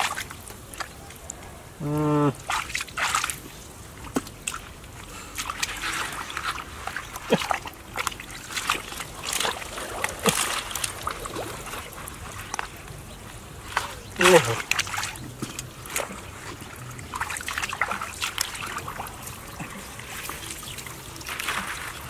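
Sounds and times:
hands splashing in muddy water: 2.3s - 22.0s.

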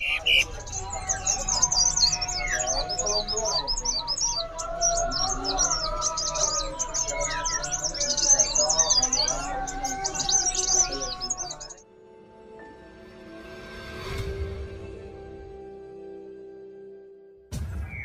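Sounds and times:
songbird singing: 0.0s - 11.8s.

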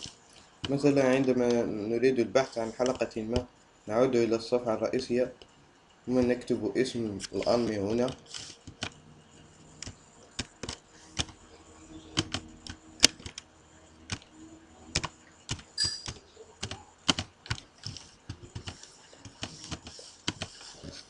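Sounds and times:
computer keyboard typing: 7.2s - 21.0s.

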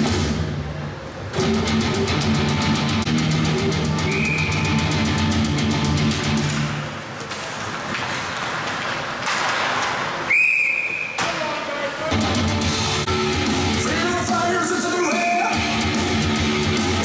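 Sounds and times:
arena music: 0.0s - 7.1s, 11.9s - 17.0s
referee's whistle blast: 4.0s - 4.8s, 10.3s - 11.2s, 15.0s - 15.7s.

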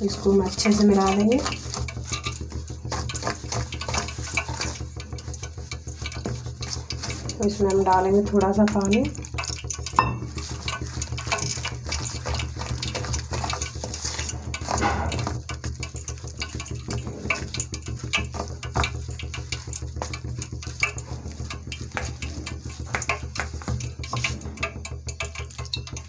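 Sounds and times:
spoon scraping steel bowl: 9.8s - 15.6s, 20.7s - 25.7s.

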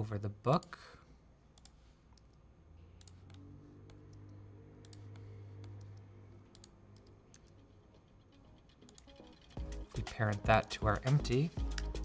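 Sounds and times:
low steady hum: 0.0s - 12.0s
mouse and keyboard clicks: 3.0s - 9.6s.

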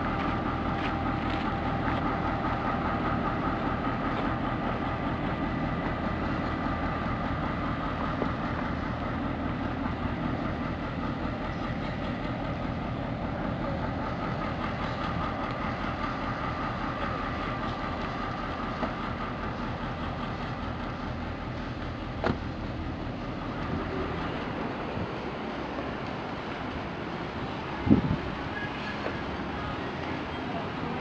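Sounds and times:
diesel locomotive engine: 0.0s - 31.0s.

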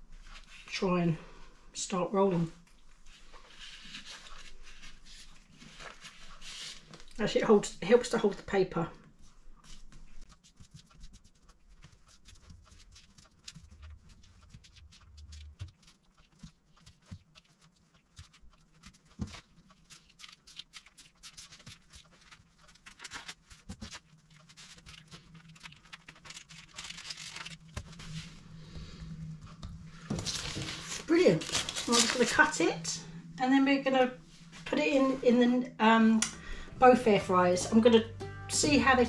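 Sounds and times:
baking paper rustling: 2.9s - 7.2s, 9.6s - 28.6s, 29.9s - 33.1s.

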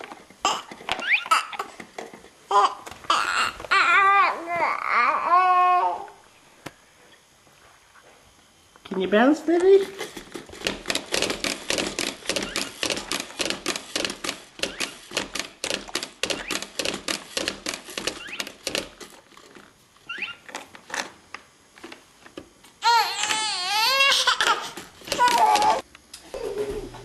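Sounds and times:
rhythmic clicking and tapping: 10.6s - 19.1s.

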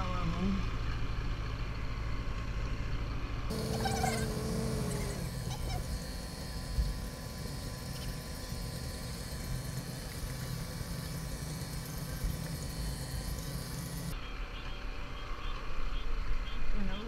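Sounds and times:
boat engine humming: 3.5s - 14.2s
hiss: 3.5s - 14.2s.

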